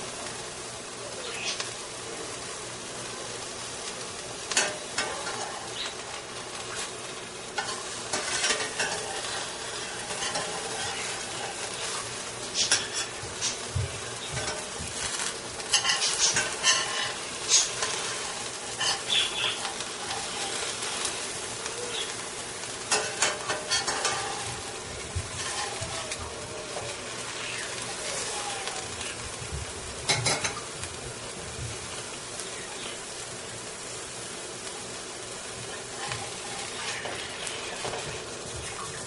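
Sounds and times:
pancake sizzling in oil: 0:00.0 - 0:39.0
spatula scraping a pan: 0:06.7 - 0:21.4, 0:22.8 - 0:26.2, 0:35.9 - 0:39.0.

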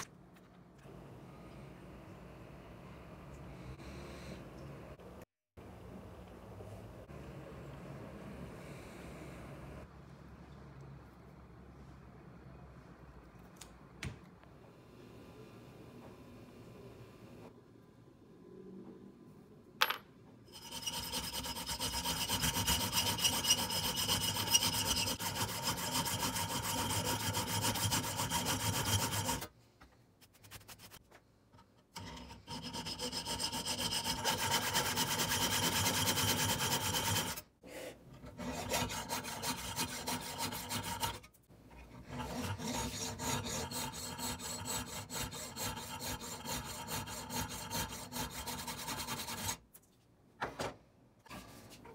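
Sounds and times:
tool rasping at workpiece: 0:20.5 - 0:29.5, 0:31.9 - 0:41.3, 0:41.9 - 0:49.6.

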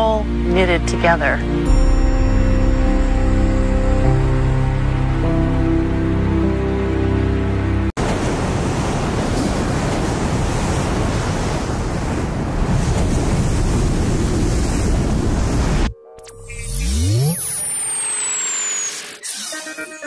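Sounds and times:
music: 0:00.0 - 0:07.9, 0:15.9 - 0:17.8
ocean surf breaking: 0:08.0 - 0:15.9.

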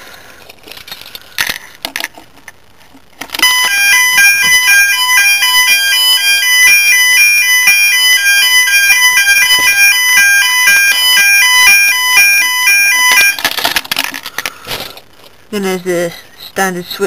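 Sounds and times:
clicks and rustling of wiring: 0:00.1 - 0:03.8, 0:12.9 - 0:15.4
electronic fire alarm tones: 0:03.4 - 0:13.4.

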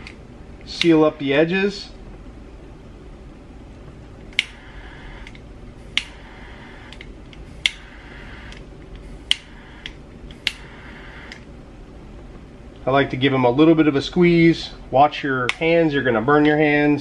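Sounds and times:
gas torch igniter click: 0:04.3 - 0:11.5
torch flame hiss: 0:04.4 - 0:11.5.

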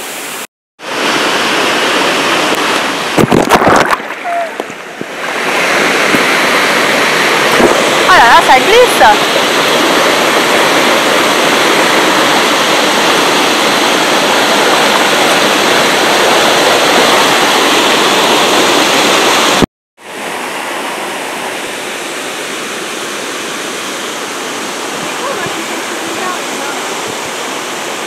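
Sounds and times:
waterfall rushing over rocks: 0:00.0 - 0:28.0.

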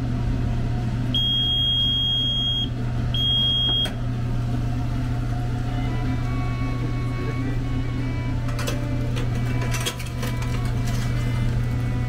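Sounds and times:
oven hum: 0:00.0 - 0:12.0
oven timer beeping: 0:01.1 - 0:04.1.

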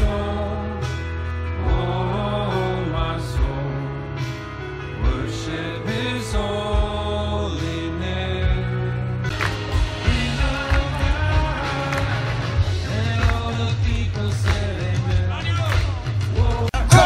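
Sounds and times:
worship band over loudspeakers: 0:00.0 - 0:17.0
steady drum beat: 0:09.3 - 0:17.0.

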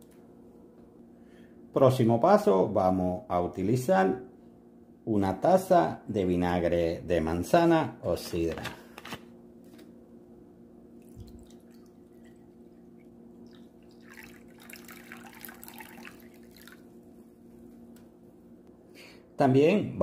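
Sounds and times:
liquid pouring into cup: 0:11.0 - 0:17.0.

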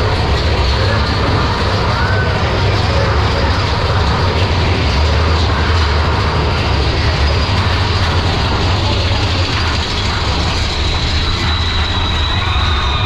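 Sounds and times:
roller coaster wheels rumbling: 0:00.0 - 0:13.0.

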